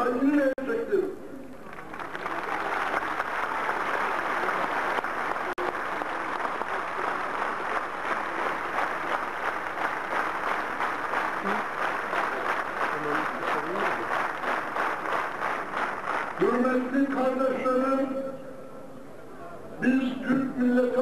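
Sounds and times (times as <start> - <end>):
crowd applauding: 1.6 - 17.2.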